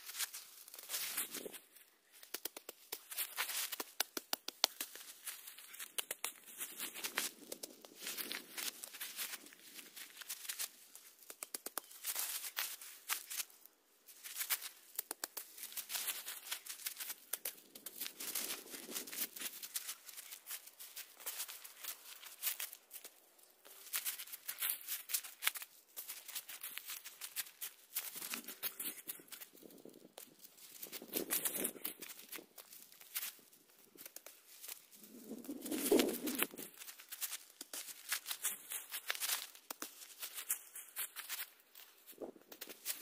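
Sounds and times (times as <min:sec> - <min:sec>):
crackling and rustling: 0:00.0 - 0:43.0.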